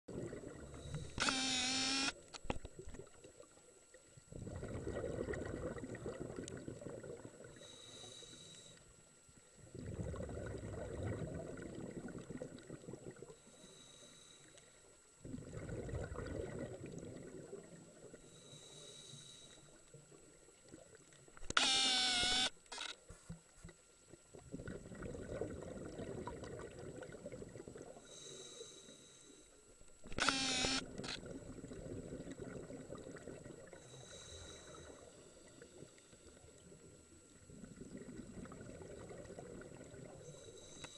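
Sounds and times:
exhaled bubbles rushing: 0.1s - 0.8s, 4.3s - 7.5s, 9.7s - 13.2s, 15.2s - 17.8s, 24.4s - 28.0s, 31.2s - 33.8s, 37.4s - 40.2s.

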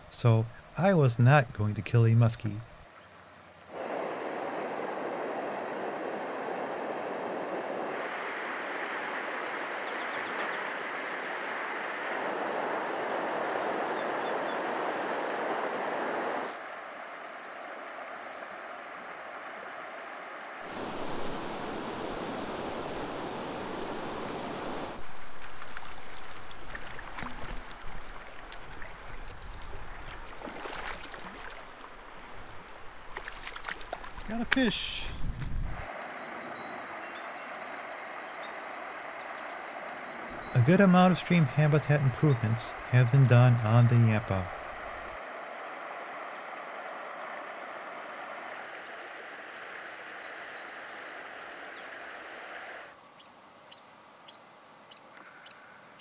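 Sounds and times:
river rushing over riffles: 3.7s - 34.7s, 35.8s - 53.0s.

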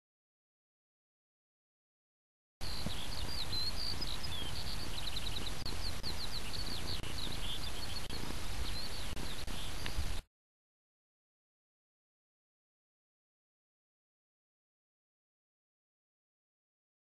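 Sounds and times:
small bird chirping and trilling: 2.6s - 10.2s
wind rumbling on microphone: 2.6s - 10.2s.

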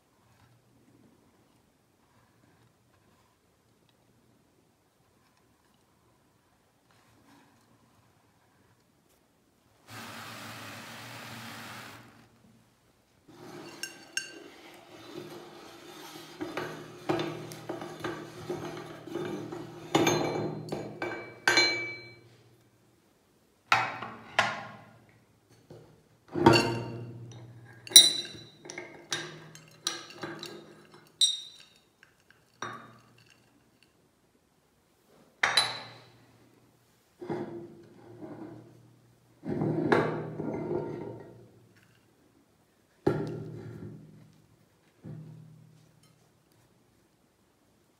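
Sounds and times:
metal parts clinking: 27.9s - 32.6s.

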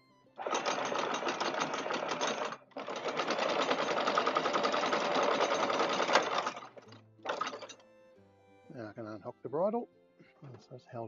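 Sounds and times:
anchor windlass hauling chain: 0.4s - 7.8s.

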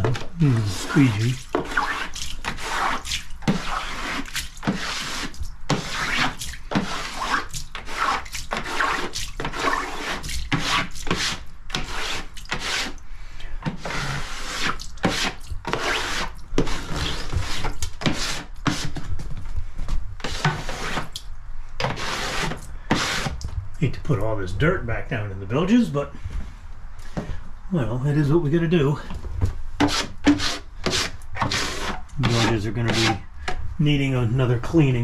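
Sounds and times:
squeegee on wet wooden floor: 0.0s - 13.0s, 13.7s - 19.0s, 20.2s - 21.2s, 21.8s - 23.4s, 29.8s - 33.2s.

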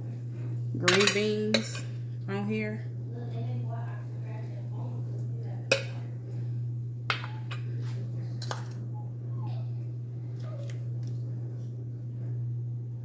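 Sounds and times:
steady low hum: 0.0s - 13.0s
metal spoon clinking on dishes: 0.9s - 1.9s.

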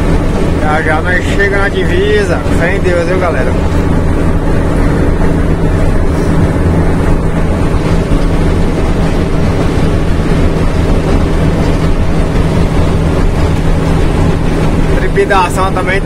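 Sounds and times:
road noise: 0.0s - 16.0s
truck diesel engine running: 0.0s - 16.0s.

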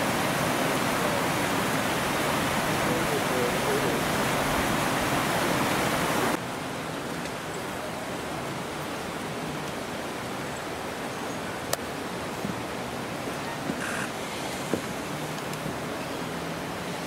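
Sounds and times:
steady hiss: 0.0s - 9.0s
river rushing over rocks: 0.0s - 17.0s.

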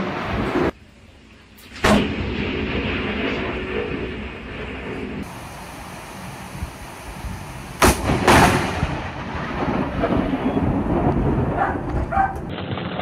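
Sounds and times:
thunderclap: 1.7s - 5.5s, 6.2s - 13.0s
thunder rumbling: 1.8s - 13.0s
steady rain: 5.2s - 11.6s.

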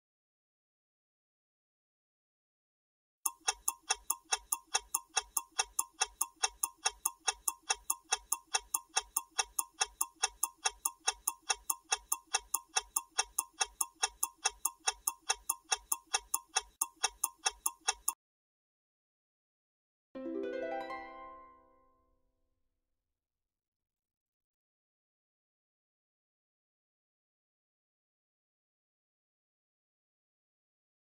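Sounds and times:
countdown timer clock ticking: 3.3s - 18.2s.

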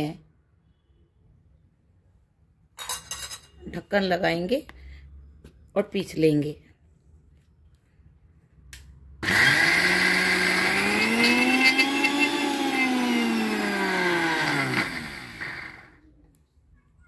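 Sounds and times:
mixer grinder motor whining: 9.2s - 16.0s.

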